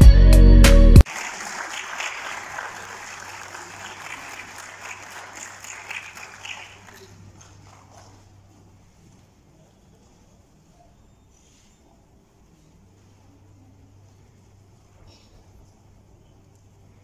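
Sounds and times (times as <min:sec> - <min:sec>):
audience applauding: 0:01.0 - 0:08.3.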